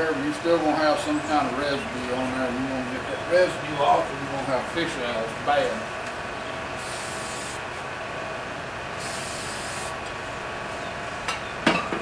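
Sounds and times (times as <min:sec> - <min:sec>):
hissing spray bursts: 0:06.8 - 0:07.8, 0:09.0 - 0:10.0.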